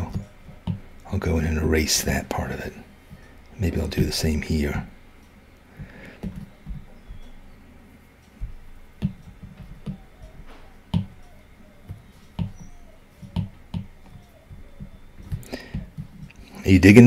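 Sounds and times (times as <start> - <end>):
stylus tapping on glass screen: 8.4 - 16.3.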